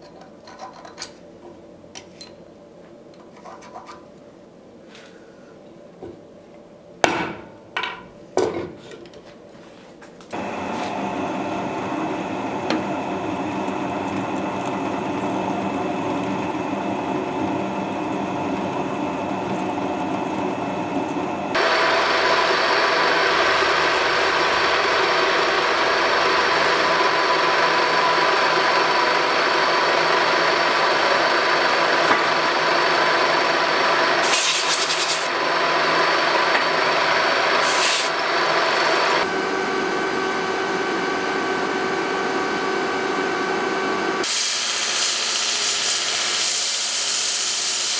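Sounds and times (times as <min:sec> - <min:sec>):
drill press boring into steel: 0:10.4 - 0:39.2.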